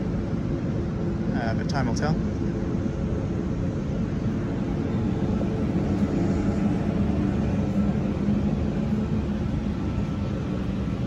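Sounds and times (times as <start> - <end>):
faint hum: 0.0 - 11.0
low rumble: 2.2 - 11.0.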